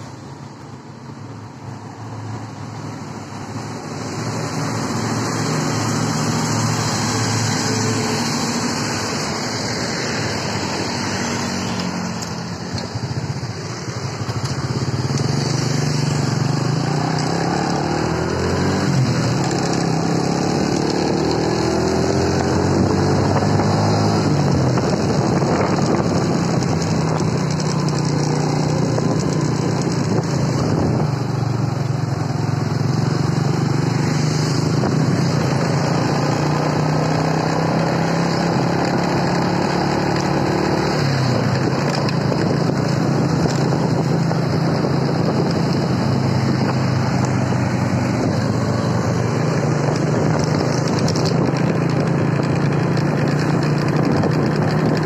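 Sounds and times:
motorcycles and cars passing: 0.0 - 55.0.

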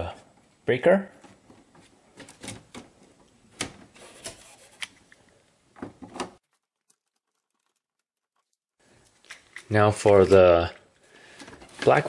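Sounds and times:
wire clicking and scraping: 6.3 - 9.8.

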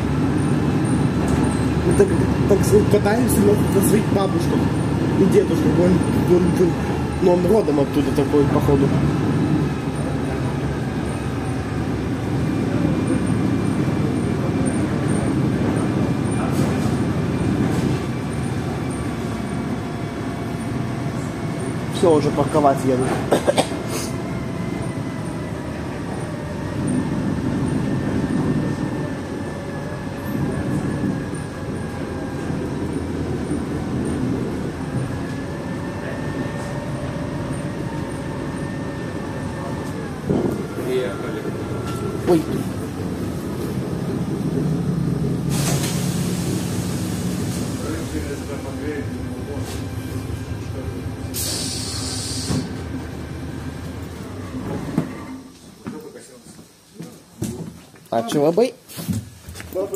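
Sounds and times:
bus body rattles: 0.0 - 24.2, 39.8 - 53.2
bus engine running: 0.0 - 55.8.

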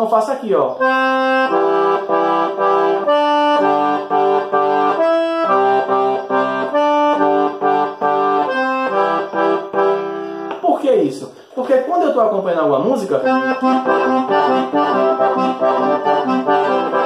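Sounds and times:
piano accordion playing chords: 0.7 - 10.6, 13.2 - 17.0.

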